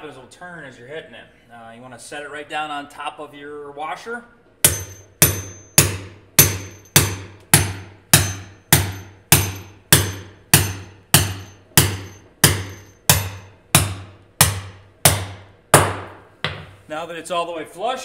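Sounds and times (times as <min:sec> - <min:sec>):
sledgehammer striking steel wedge: 0:04.6 - 0:16.6.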